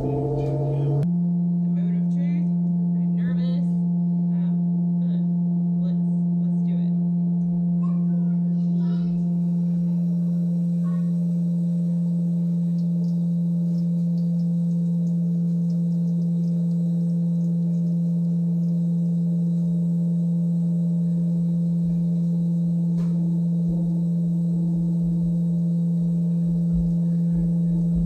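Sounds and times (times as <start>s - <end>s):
cream separator humming: 0.0s - 1.1s, 7.4s - 28.0s.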